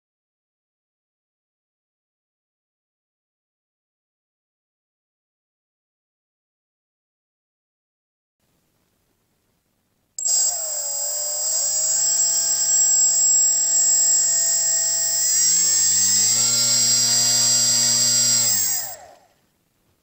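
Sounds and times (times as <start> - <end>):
small electric motor spinning propeller: 10.2 - 19.4.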